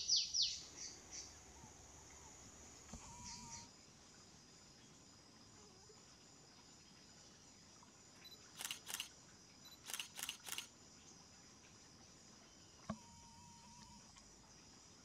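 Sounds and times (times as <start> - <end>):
faint insect drone: 0.0 - 15.0
camera shutter clicks: 8.6 - 9.1, 9.8 - 10.7.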